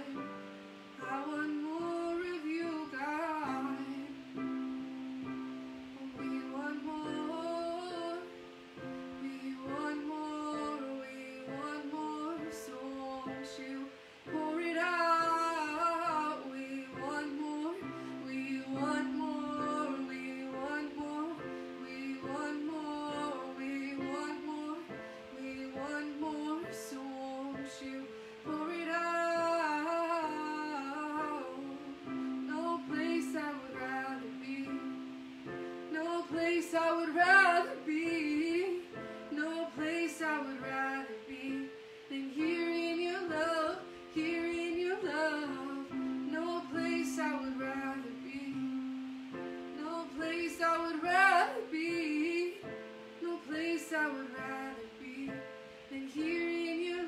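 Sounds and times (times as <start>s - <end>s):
woman singing: 0.0s - 57.0s.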